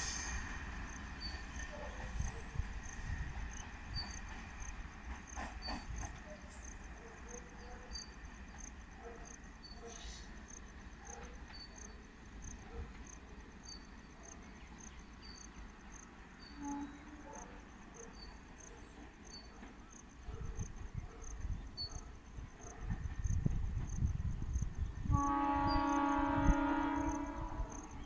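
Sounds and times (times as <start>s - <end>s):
crickets chirping: 0.0s - 28.0s
train rumble: 0.0s - 28.0s.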